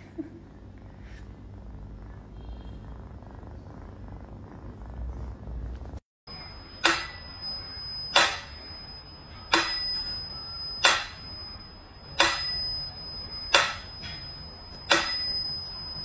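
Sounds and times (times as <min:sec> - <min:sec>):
high ringing tone: 0:06.3 - 0:16.0.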